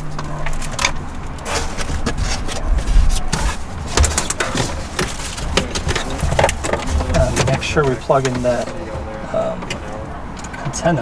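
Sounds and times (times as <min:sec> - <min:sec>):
cables rustling against plastic trim: 0:00.0 - 0:10.8
low bumping rumble: 0:01.1 - 0:10.2.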